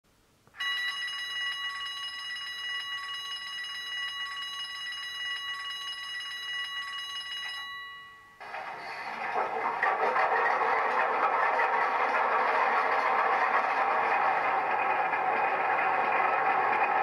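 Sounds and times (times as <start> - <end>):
high-pitched bell ringing: 0.6 - 8.6.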